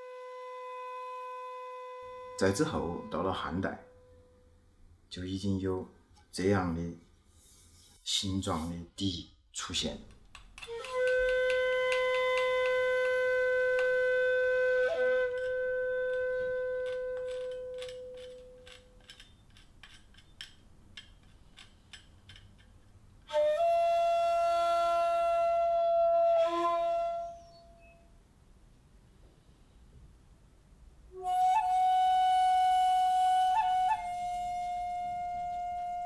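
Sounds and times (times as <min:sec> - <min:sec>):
bamboo flute breathy held notes: 0:00.0 - 0:04.6, 0:10.6 - 0:18.5, 0:23.2 - 0:28.1, 0:31.1 - 0:36.0.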